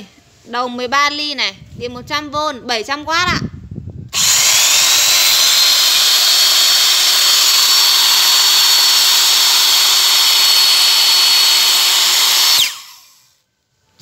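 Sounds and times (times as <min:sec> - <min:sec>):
electric drill running: 0:04.1 - 0:13.4.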